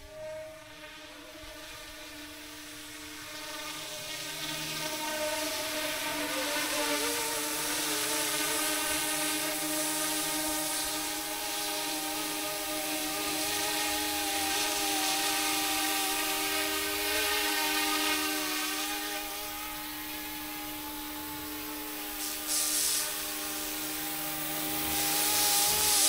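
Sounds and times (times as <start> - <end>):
toy helicopter motor whine: 0.0 - 26.0
short burst of hiss: 22.1 - 26.0.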